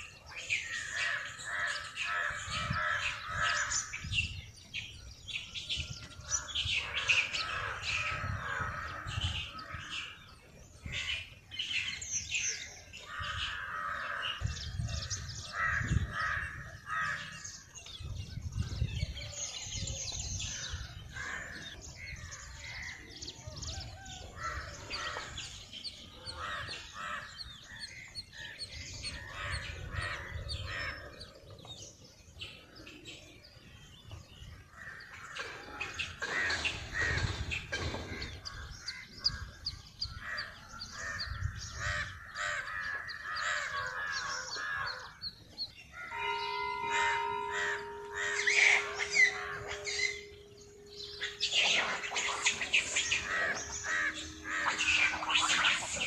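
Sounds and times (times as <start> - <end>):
birds chirping: 0.0 - 56.0
harsh bird calls: 0.0 - 56.0.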